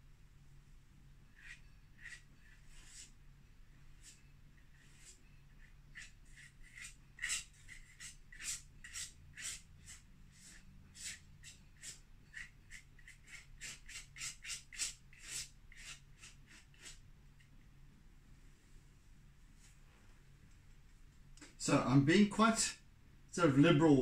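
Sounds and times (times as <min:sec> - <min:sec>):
scratchy paint dabbing strokes: 0:01.3 - 0:03.2, 0:04.0 - 0:17.6.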